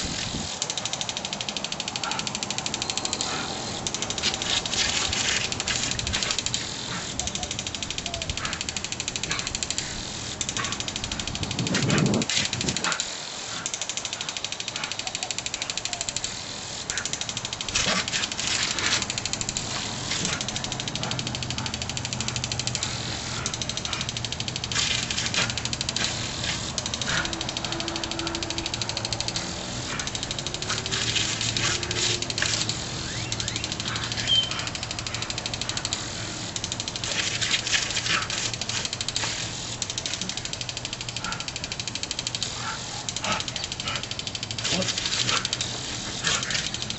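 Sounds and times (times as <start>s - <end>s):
impact sprinkler clicking: 0.0s - 46.9s
water spray hissing: 0.0s - 46.9s.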